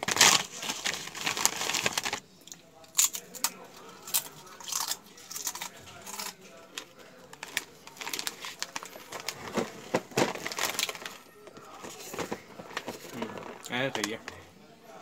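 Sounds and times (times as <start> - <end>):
plastic packet crinkling: 0.0 - 2.2, 2.9 - 14.4
chewing crunchy chips: 0.2 - 9.4.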